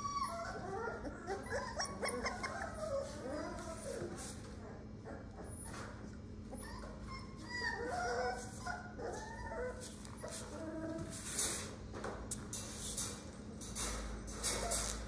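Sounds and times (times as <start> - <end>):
puppies whimpering and yipping: 0.0 - 11.2.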